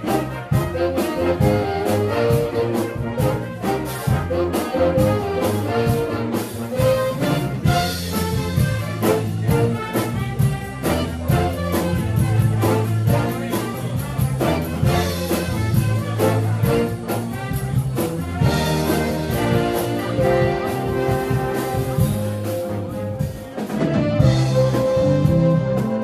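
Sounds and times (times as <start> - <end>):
big band playing: 0.0 - 26.0.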